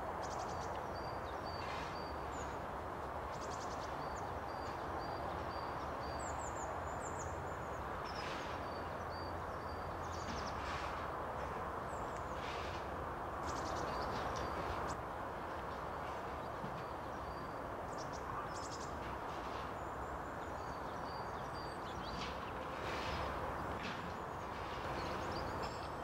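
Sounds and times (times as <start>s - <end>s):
small birds chirping: 13.4s - 15.0s, 19.7s - 26.0s.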